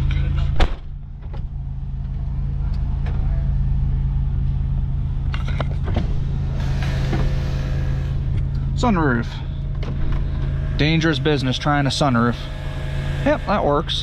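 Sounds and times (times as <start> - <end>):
car engine idling: 0.0 - 14.0
car door shutting: 0.4 - 1.5, 5.6 - 8.0.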